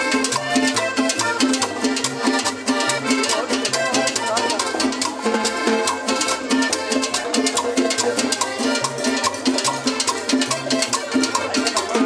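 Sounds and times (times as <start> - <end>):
live band playing latin dance music: 0.0 - 12.0
steady percussion beat: 0.0 - 12.0.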